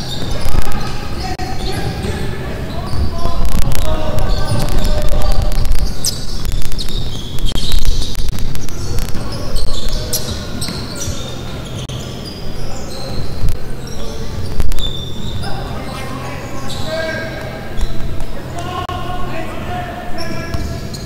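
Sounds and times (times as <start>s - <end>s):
sneakers squeaking: 0.0s - 18.8s, 20.0s - 21.0s
basketball bouncing: 20.5s - 20.8s.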